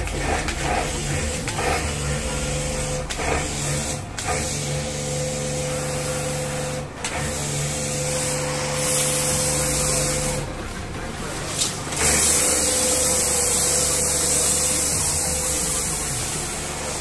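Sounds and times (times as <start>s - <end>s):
pressure washer motor running: 0.0s - 17.0s
water spray hissing on car: 7.5s - 10.5s, 11.5s - 17.0s.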